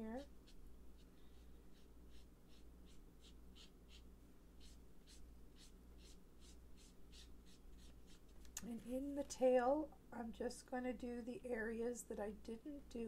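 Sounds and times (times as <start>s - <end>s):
low steady hum: 0.0s - 13.0s
marker brush swishing on cardstock: 0.2s - 4.0s, 4.6s - 8.5s.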